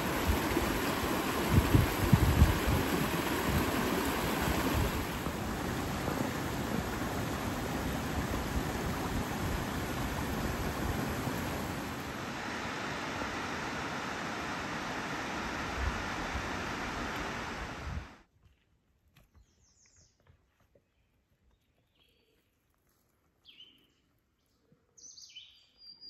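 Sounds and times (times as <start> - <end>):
stream rushing over stones: 0.0 - 18.2.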